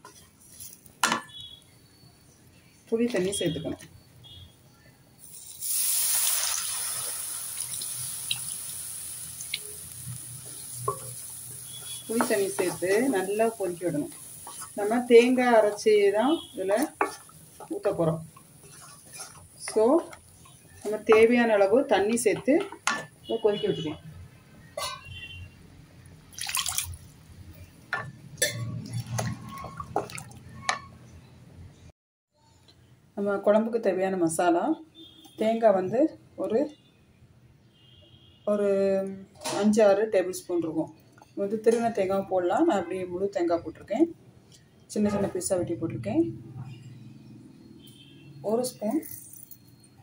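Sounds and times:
liquid hissing in hot pan: 5.2s - 15.2s
spatula stirring: 10.1s - 23.2s, 28.4s - 30.9s.

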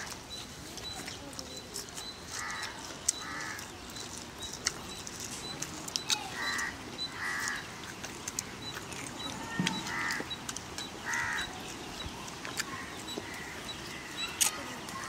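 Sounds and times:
crow cawing: 2.3s - 3.7s, 6.3s - 7.7s, 9.7s - 10.4s, 11.0s - 11.6s, 12.7s - 14.1s.

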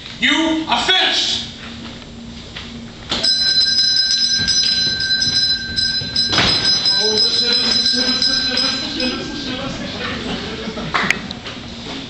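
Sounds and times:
bell ringing: 3.2s - 10.4s.

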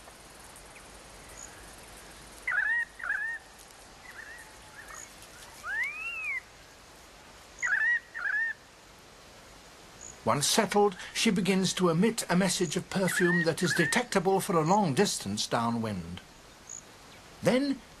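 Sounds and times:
rising and falling bird whistle: 5.6s - 6.4s.

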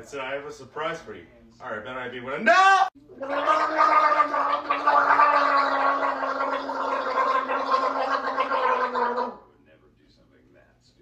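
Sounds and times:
person gargling: 3.1s - 9.4s.

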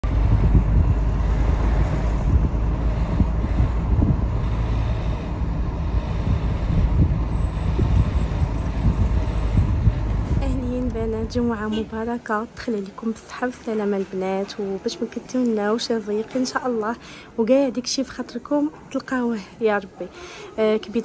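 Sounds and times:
wind buffeting microphone: 0.0s - 12.3s
car engine and tyres rumbling: 0.0s - 13.1s.

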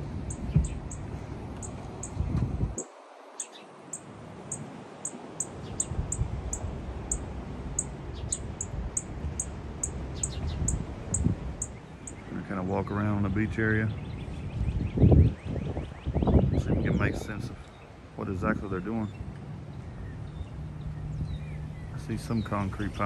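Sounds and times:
wind rumbling on microphone: 0.0s - 23.0s
faint bird calls: 2.8s - 7.2s
very high chirps or ticks: 2.8s - 7.2s, 7.8s - 12.2s.

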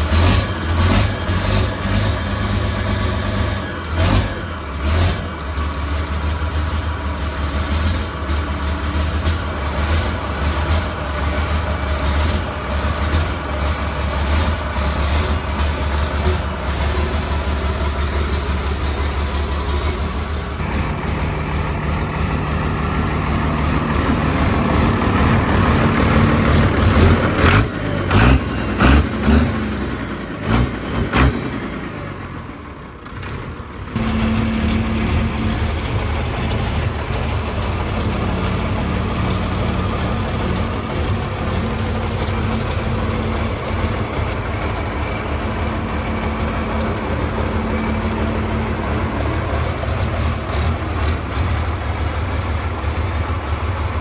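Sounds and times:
diesel engine idling and revving: 0.0s - 54.0s.

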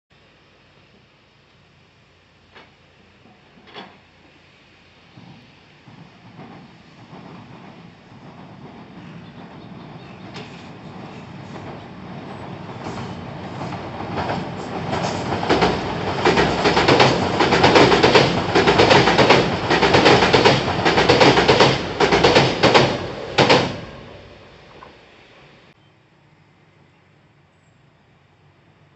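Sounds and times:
train wheels clacking over rail joints: 2.5s - 4.2s, 5.1s - 25.0s
bridge deck rumbling and rattling: 5.0s - 25.6s.

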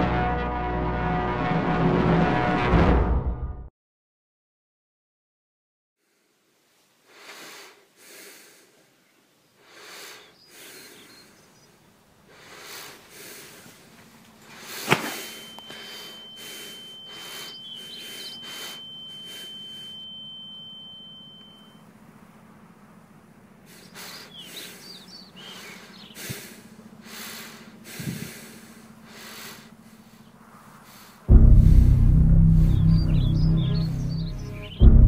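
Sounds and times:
breathy rushes of noise: 12.3s - 20.0s, 23.7s - 31.8s
low hum: 13.3s - 35.0s
high-pitched ringing tone: 15.0s - 22.1s
sharp bang: 31.3s - 35.0s.

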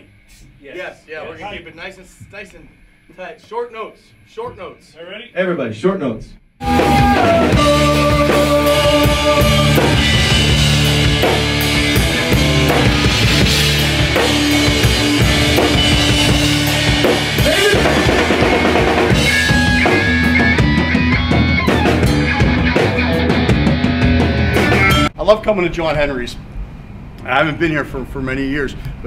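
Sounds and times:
electric guitar: 6.6s - 25.1s
drum kit: 6.6s - 25.2s
electric bass: 6.6s - 25.2s.

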